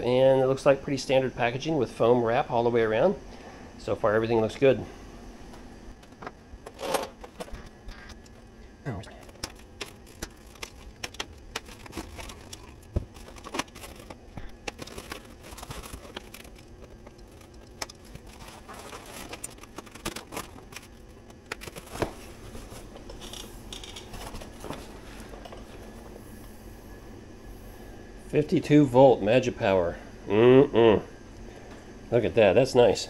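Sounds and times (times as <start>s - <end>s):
foam packing wrap rustling: 9.1s - 23.4s.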